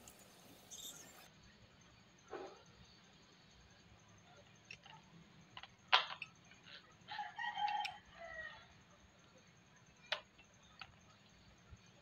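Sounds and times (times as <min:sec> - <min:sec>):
distant rooster crowing: 0:07.1 - 0:08.8.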